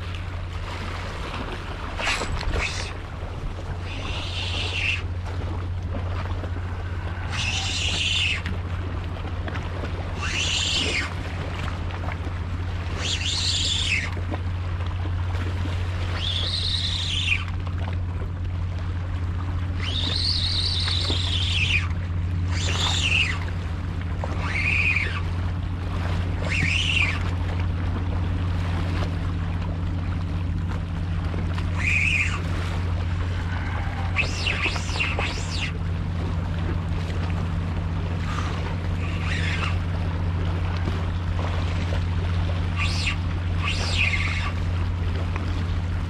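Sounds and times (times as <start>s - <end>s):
steady low rumble: 0.0s - 46.0s
fishing reel whining: 2.0s - 3.0s, 3.8s - 5.1s, 6.8s - 8.5s, 10.2s - 11.2s, 13.0s - 14.1s, 16.2s - 17.5s, 19.8s - 23.5s, 24.2s - 25.3s, 26.4s - 27.3s, 31.7s - 32.5s, 33.4s - 35.8s, 38.3s - 39.9s, 42.7s - 44.6s.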